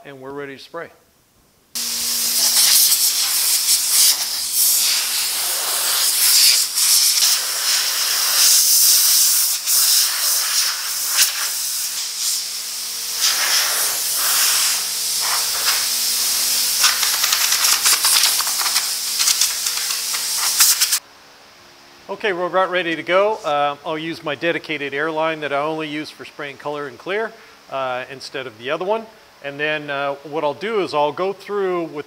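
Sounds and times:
compressed air blow gun hissing: 1.8 - 21.0.

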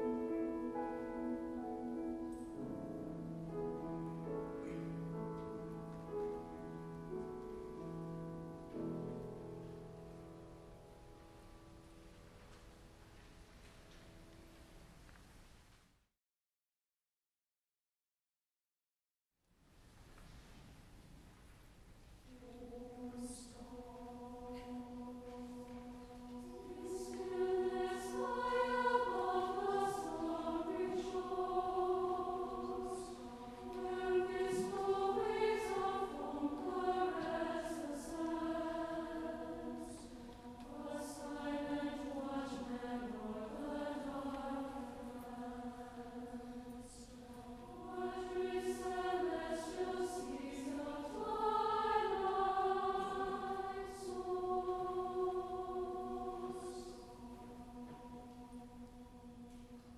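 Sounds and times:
mixed choir singing: 0.0 - 9.8, 22.3 - 59.9.

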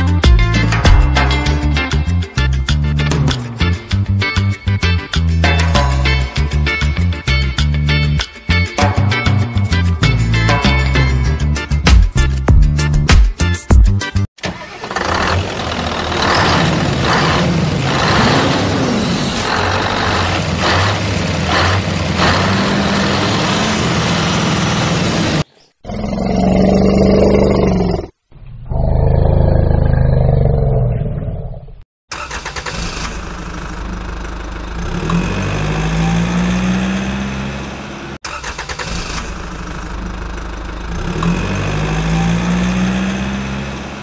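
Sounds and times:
engine revving: 14.5 - 25.5, 32.1 - 44.0
vehicle engine running: 14.9 - 25.5, 33.0 - 38.2, 38.9 - 44.0
engine idling: 32.2 - 36.4, 37.4 - 42.5.

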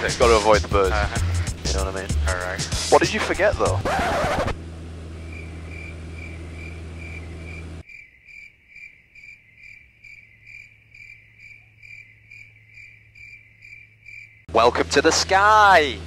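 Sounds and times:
airplane engine drone: 0.0 - 7.8, 14.5 - 16.0
cricket chirping: 5.2 - 14.5.

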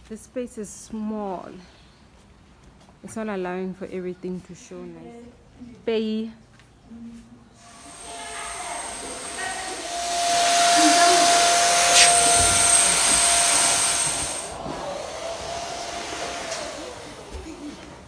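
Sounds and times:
electric air blower hissing: 7.6 - 18.0.

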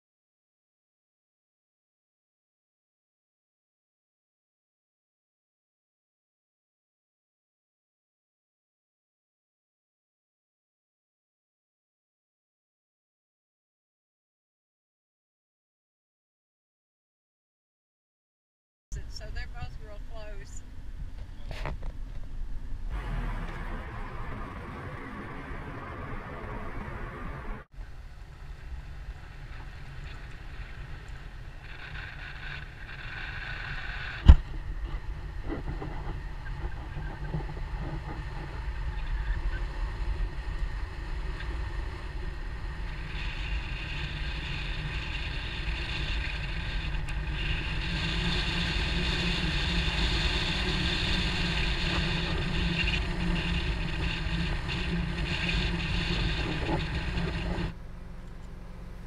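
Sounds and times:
wind on microphone: 19.0 - 57.8
car tyre and engine noise: 20.6 - 59.0.

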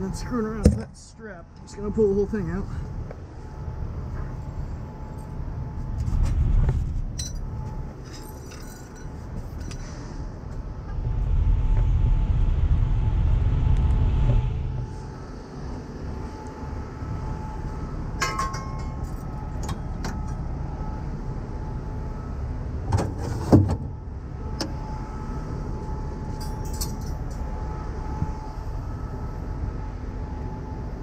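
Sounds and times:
metal tools clanking: 7.1 - 9.8, 18.2 - 20.4, 26.3 - 27.4.

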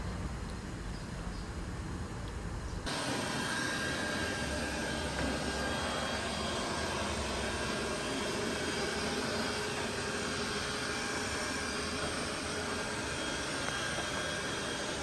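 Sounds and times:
robot vacuum cleaner whirring: 2.9 - 15.0.

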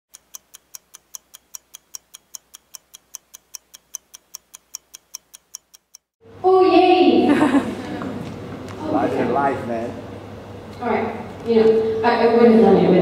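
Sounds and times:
rapid ticking: 0.1 - 6.1.

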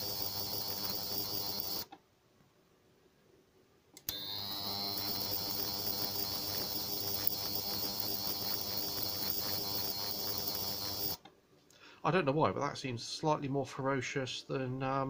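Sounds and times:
ultrasonic cleaner buzzing hum: 0.0 - 1.9, 4.0 - 11.3.

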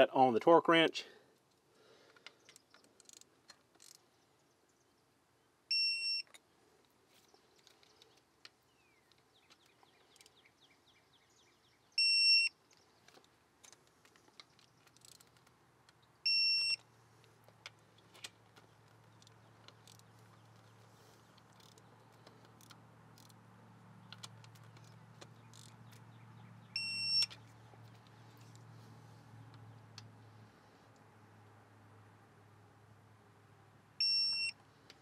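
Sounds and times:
faint ratchet clicks: 2.1 - 4.1, 12.7 - 16.0, 16.8 - 23.4, 24.0 - 26.1
torque wrench beeping: 16.2 - 16.8, 26.8 - 27.4, 34.0 - 34.6.

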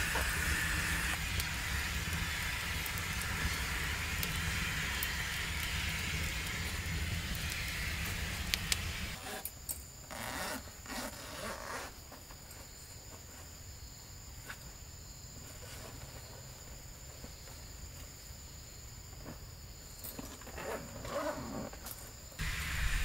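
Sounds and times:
wood fire hissing and crackling: 0.0 - 10.2, 22.4 - 23.0.

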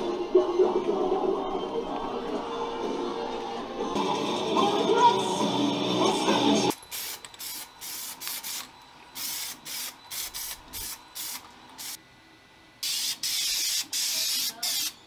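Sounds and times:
aerosol spray can hissing: 6.9 - 12.0.

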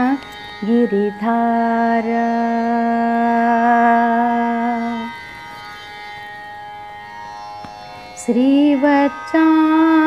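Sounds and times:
woman singing: 0.0 - 5.2, 8.2 - 10.0.

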